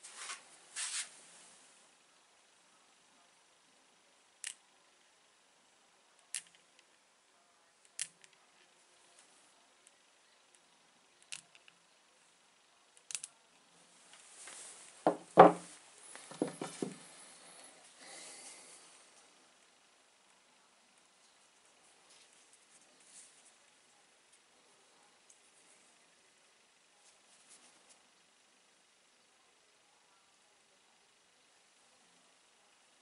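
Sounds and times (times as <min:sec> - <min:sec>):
magnet clicking against stones: 0:04.4 - 0:04.6, 0:06.2 - 0:06.9, 0:07.8 - 0:08.4, 0:11.2 - 0:11.8, 0:13.0 - 0:13.4
stones knocking on wooden table: 0:15.1 - 0:15.7, 0:16.3 - 0:17.0.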